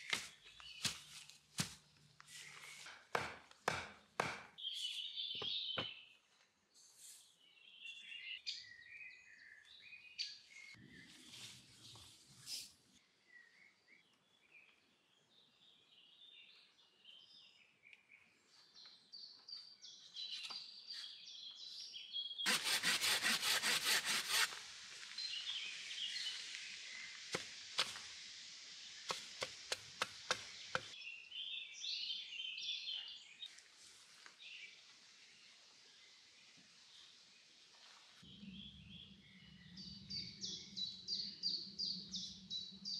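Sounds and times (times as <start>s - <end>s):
small birds chirping: 0.0s - 33.6s, 34.2s - 42.9s
fast hand strokes on wood: 22.5s - 24.6s.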